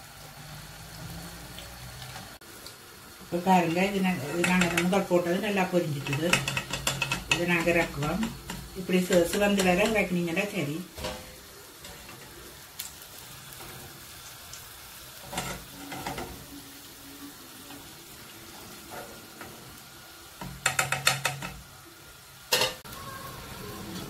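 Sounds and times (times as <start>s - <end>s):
deep-frying oil sizzle: 0.0s - 24.0s
metal spatula clacking on pot: 4.2s - 5.1s, 5.9s - 10.1s, 20.4s - 21.6s.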